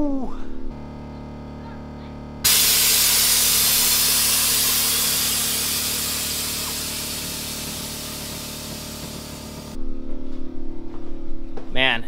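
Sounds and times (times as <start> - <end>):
air suspension hissing: 2.5 - 9.8.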